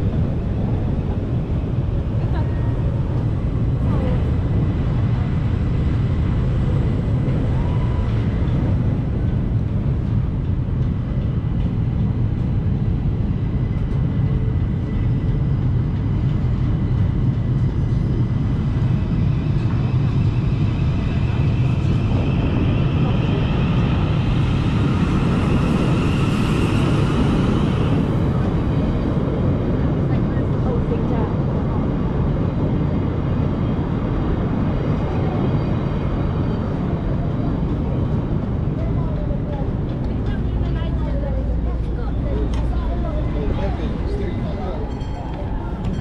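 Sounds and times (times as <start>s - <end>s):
city traffic rumble: 0.0s - 46.0s.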